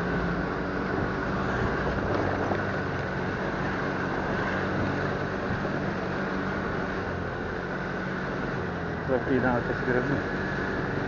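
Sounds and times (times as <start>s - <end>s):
wind noise on microphone: 0.0s - 6.0s
scooter engine running: 0.0s - 11.0s.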